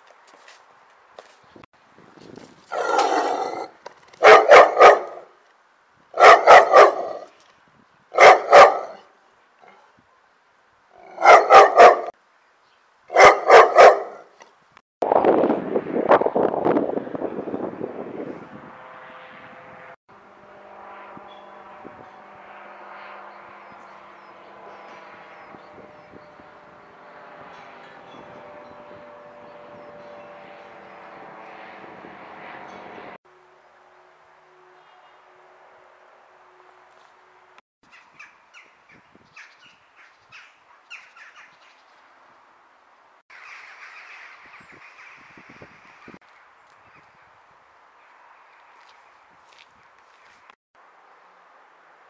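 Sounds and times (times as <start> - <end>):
dog barking: 2.7 - 5.3, 6.2 - 7.3, 8.2 - 9.0, 11.0 - 12.1, 13.1 - 14.3
light aircraft engine droning: 15.3 - 37.6.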